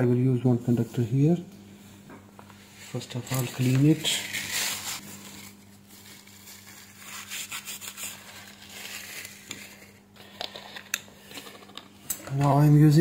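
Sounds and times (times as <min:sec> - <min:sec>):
tissue rubbing on circuit board: 0:02.7 - 0:10.0.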